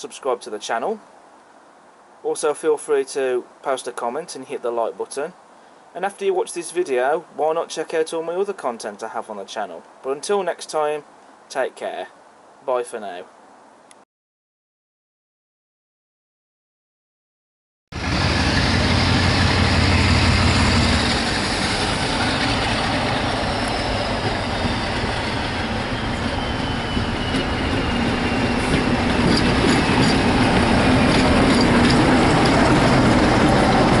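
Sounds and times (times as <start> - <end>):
diesel locomotive passing: 17.9 - 34.0
wheels on rails: 18.0 - 34.0.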